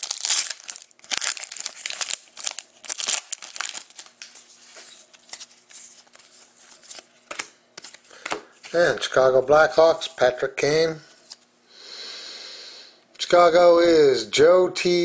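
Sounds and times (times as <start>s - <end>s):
foil wrapper crinkling and tearing: 0.0s - 7.1s
cards rustling: 0.0s - 9.1s.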